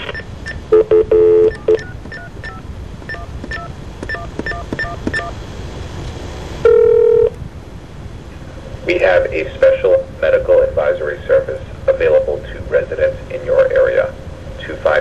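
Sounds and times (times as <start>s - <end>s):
steady telephone tone: 0.0s - 5.4s, 6.6s - 7.3s
touch-tone keypad beeps: 0.0s - 5.4s.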